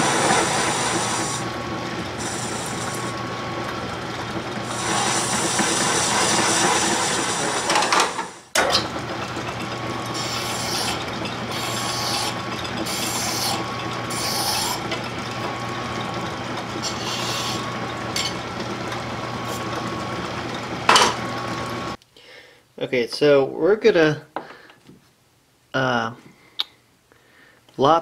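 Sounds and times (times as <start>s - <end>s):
metal lathe humming: 0.0s - 22.0s
file rasping on metal: 2.2s - 3.2s, 4.6s - 8.1s, 10.1s - 15.5s, 16.6s - 18.4s.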